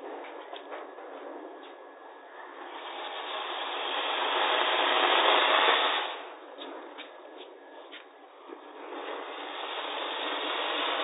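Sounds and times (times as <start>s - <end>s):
firework fountain hissing: 2.5s - 6.5s, 8.6s - 11.0s.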